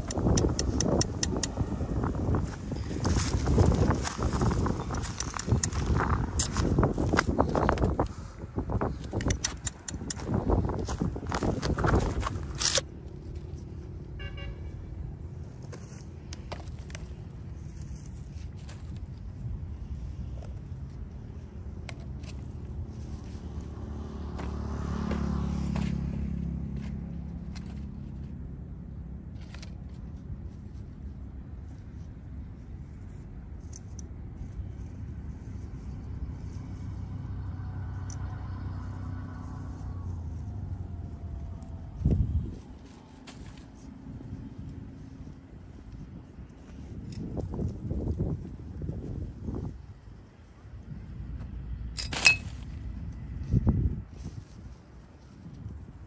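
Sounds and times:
wind noise on microphone: 0.0 - 24.3, 29.4 - 56.0
vehicle engine hum: 0.0 - 56.0.

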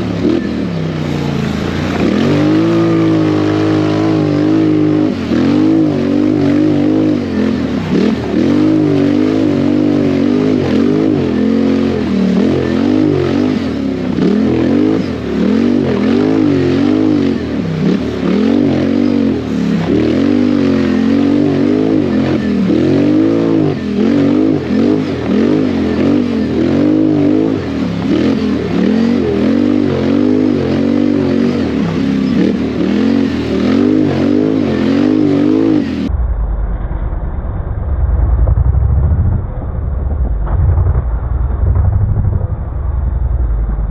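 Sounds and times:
quad bike engine revving: 0.0 - 36.1.

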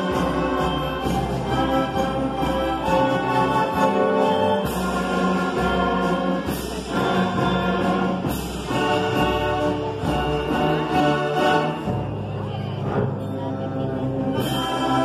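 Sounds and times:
string orchestra playing chords: 0.0 - 15.0.

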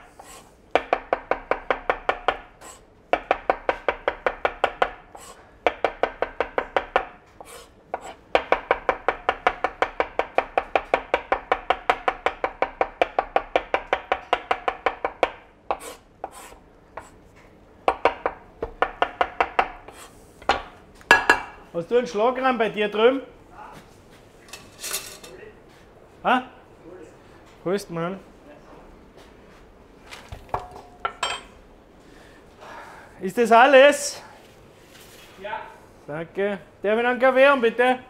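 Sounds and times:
knife chopping on plastic board: 0.7 - 2.5, 3.1 - 5.0, 5.6 - 17.1, 17.9 - 20.7.

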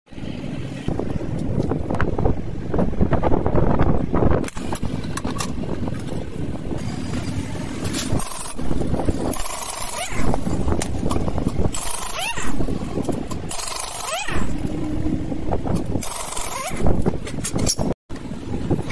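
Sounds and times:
steady low rumble: 0.1 - 9.6, 14.4 - 18.9
pneumatic impact wrench: 6.8 - 14.7, 16.0 - 17.9
hand tools clicking: 15.7 - 17.9.

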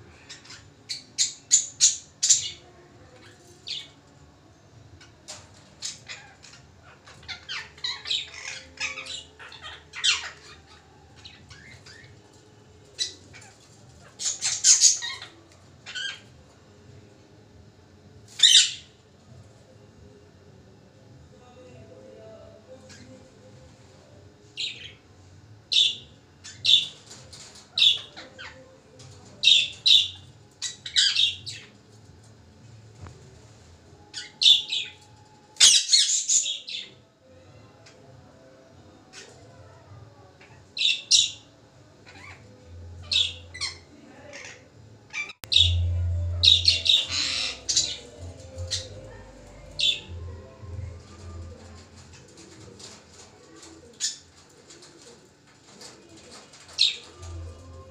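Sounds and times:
parrots calling: 5.8 - 12.2, 13.0 - 16.3, 42.0 - 54.4
parakeet harsh calls: 13.0 - 16.2, 42.0 - 49.2.

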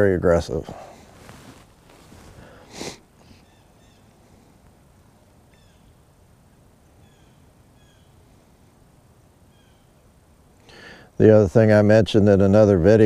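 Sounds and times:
faint bird chirps: 3.2 - 4.2, 5.2 - 8.6, 9.4 - 10.1.

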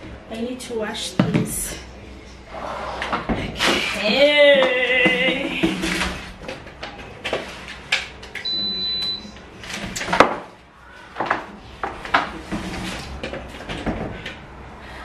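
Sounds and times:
short electronic beep: 8.4 - 9.4.

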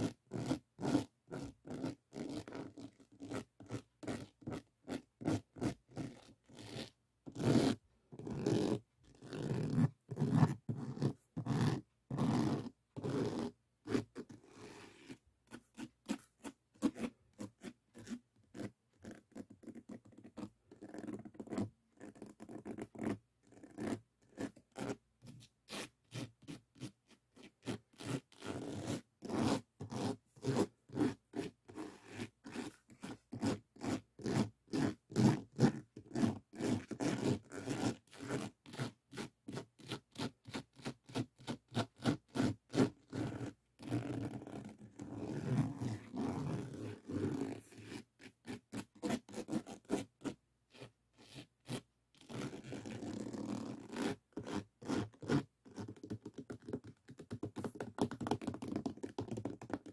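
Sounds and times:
fingers scratching beaded surface: 0.8 - 18.7.

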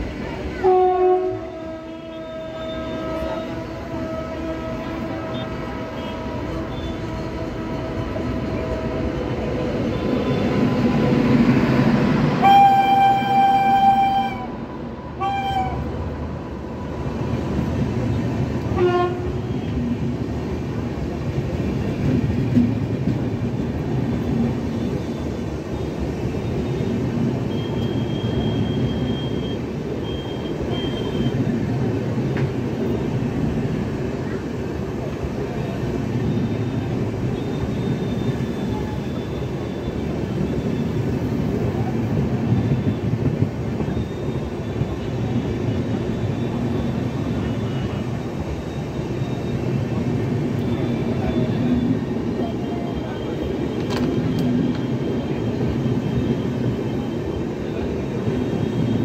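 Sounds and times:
train wheels rumbling on track: 0.0 - 59.0
train horn: 0.6 - 10.5, 12.4 - 16.0, 18.6 - 19.8.

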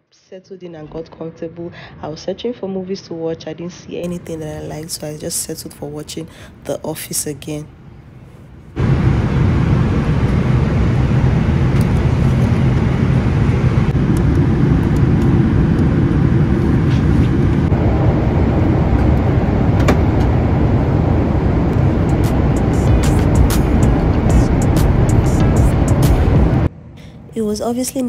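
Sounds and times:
jet engine cabin roar: 4.0 - 28.0.

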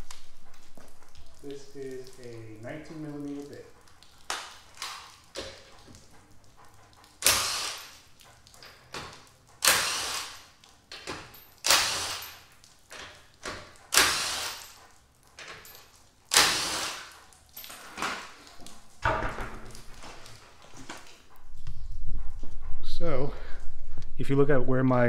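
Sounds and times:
impact wrench bursts: 7.2 - 7.9, 9.6 - 10.5, 11.6 - 12.4, 13.9 - 14.7, 16.3 - 17.1.

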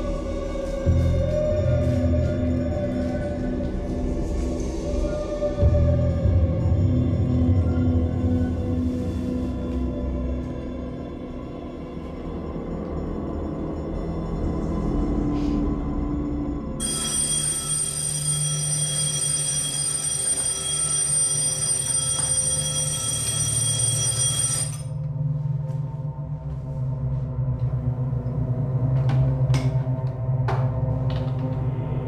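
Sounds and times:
alarm clock ringing: 16.8 - 25.0.

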